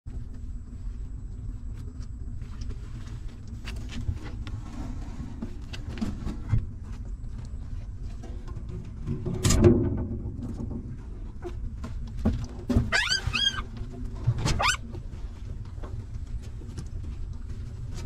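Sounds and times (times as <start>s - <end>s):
steady low rumble: 0.1s - 12.7s.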